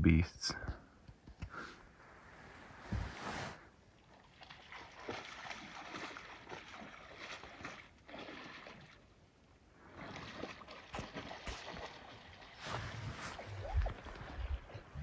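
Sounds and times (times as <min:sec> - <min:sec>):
water splashing and sloshing: 0:02.0 - 0:15.0.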